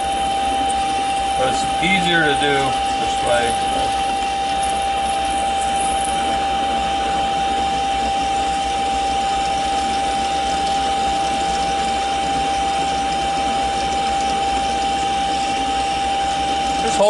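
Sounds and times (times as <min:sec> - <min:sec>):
lathe cutting steel with high whine: 0:00.0 - 0:17.0.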